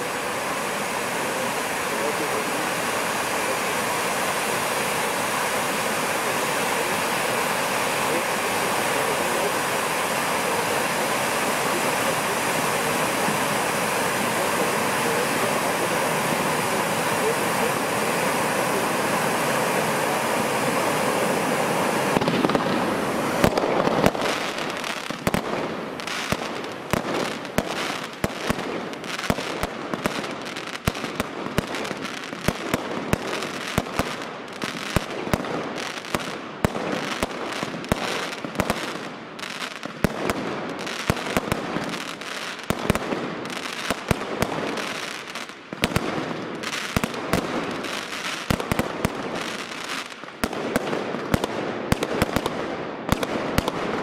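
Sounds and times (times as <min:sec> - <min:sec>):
firework fountains hissing: 0:00.0 - 0:54.0
fireworks bangs and crackles: 0:00.0 - 0:54.0.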